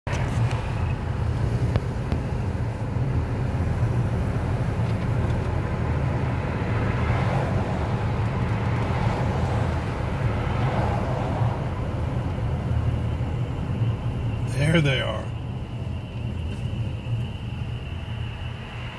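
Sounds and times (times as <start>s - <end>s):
air rushing past car: 0.1s - 18.9s
car engine and tyre drone: 0.1s - 18.9s.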